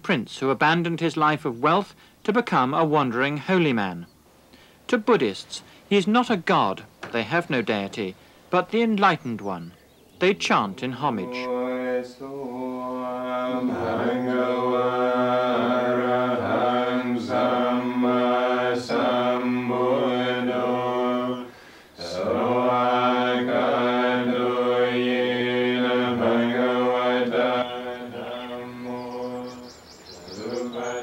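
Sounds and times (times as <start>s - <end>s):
men chanting in monotone: 10.3s - 31.0s.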